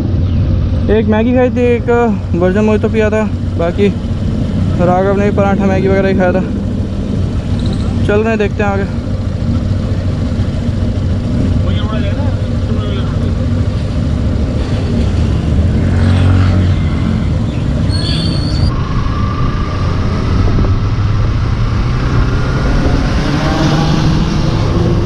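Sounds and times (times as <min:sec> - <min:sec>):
motorcycle engine accelerating: 0:00.0 - 0:25.0
wind noise on microphone: 0:18.3 - 0:25.0.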